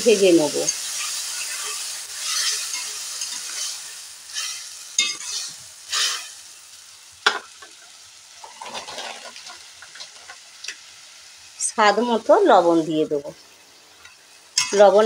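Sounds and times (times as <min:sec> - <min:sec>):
spices sizzling in oil: 0:00.0 - 0:15.0
metal spatula scraping: 0:00.7 - 0:06.4, 0:08.4 - 0:10.4
spatula clink: 0:01.5 - 0:03.7, 0:04.4 - 0:05.4, 0:14.0 - 0:15.0.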